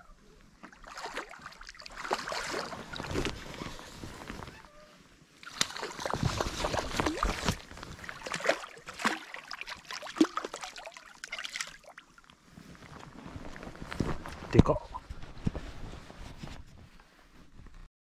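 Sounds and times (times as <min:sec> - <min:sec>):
water splashing against a boat: 0:00.6 - 0:04.6, 0:05.4 - 0:12.2.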